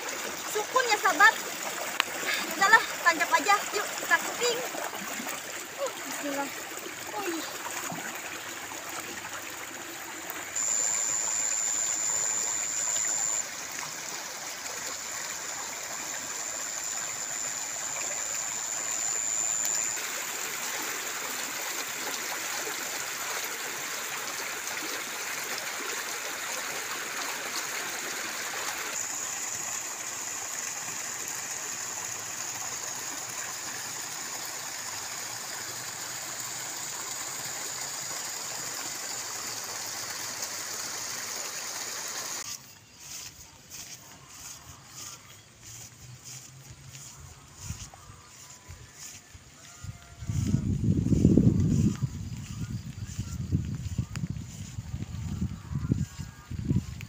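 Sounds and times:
water rushing from a pipe: 0.0s - 57.0s
high-pitched whine: 10.4s - 21.0s.

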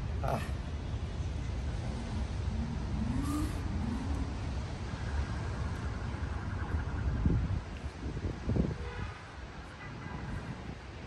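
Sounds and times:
distant traffic rumble: 0.0s - 11.0s.

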